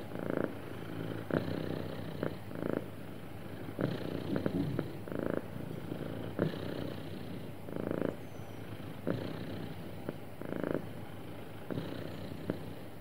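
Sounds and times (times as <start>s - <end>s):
cat purring: 0.0s - 13.0s.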